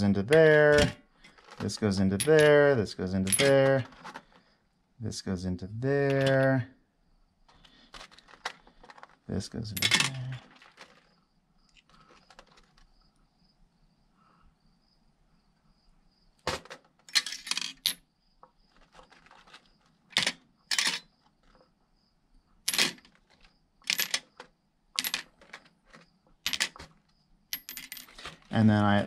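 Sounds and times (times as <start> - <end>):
small metal parts clinking: 0.3 - 4.4, 6.0 - 6.6, 7.5 - 13.0, 16.5 - 18.1, 18.7 - 21.6, 22.6 - 28.8.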